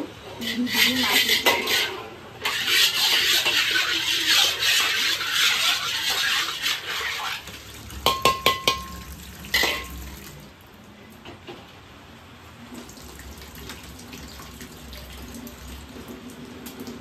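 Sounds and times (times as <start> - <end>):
wok being scrubbed: 0.2 - 10.2
running tap splashing: 6.3 - 10.5, 12.8 - 17.0
metal clanks against sink: 8.0 - 10.0.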